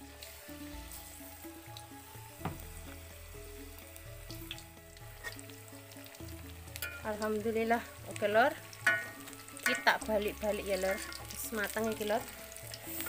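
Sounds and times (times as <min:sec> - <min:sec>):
battered food deep-frying in oil: 0:00.0 - 0:13.0
soft background music: 0:00.0 - 0:13.0
knock: 0:02.4 - 0:02.7.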